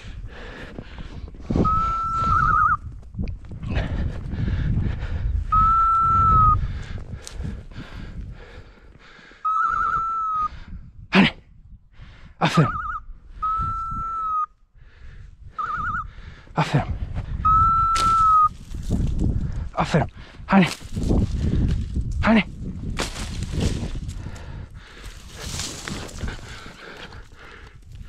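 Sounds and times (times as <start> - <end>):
beeper collar high tone: 1.7 - 2.8, 9.5 - 10.5, 12.7 - 14.5.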